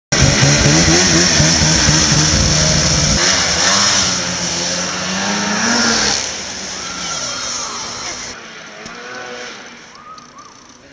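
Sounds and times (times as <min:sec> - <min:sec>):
snowmobile engine revving: 0:00.1 - 0:10.0.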